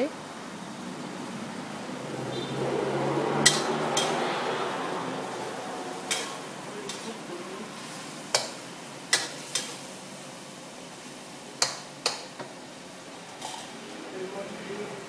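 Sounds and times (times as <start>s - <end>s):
chicken sizzling in a wok: 0.2s - 15.0s
metal spatula clanking on pan: 3.4s - 4.3s, 6.1s - 7.1s, 8.3s - 9.8s, 11.6s - 12.5s, 13.4s - 13.7s.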